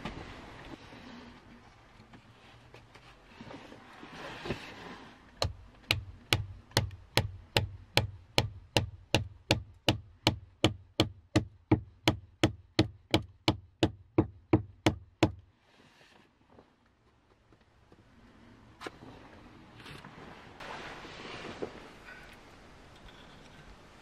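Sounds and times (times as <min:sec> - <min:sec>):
axe striking wood: 0:05.4 - 0:15.4.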